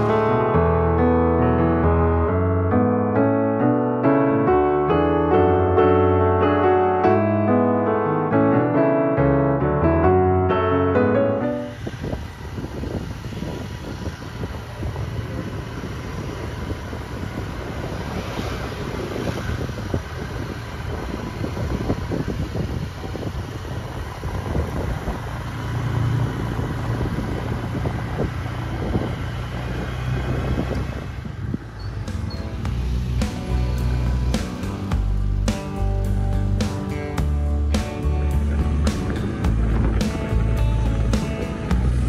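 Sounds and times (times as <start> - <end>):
road noise: 0.0 - 42.0
scooter engine drone: 0.0 - 42.0
wind buffeting microphone: 11.5 - 42.0.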